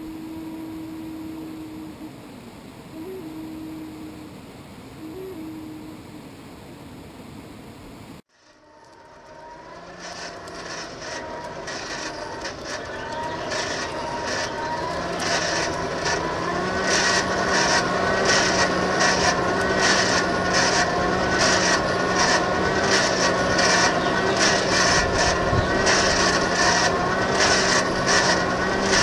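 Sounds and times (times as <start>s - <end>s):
hand-cranked blower whining: 8.3s - 29.0s.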